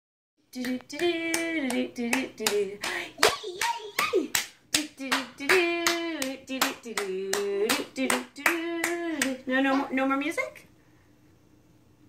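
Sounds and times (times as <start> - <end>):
sung children's tune with claps: 0.6 - 9.4.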